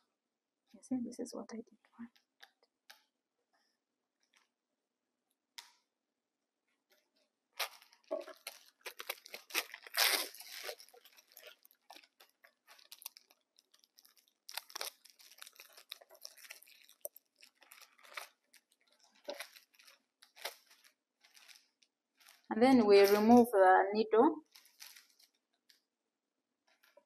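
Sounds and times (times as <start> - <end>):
plastic packaging tearing and crinkling: 7.6 - 23.4, 24.4 - 25.4.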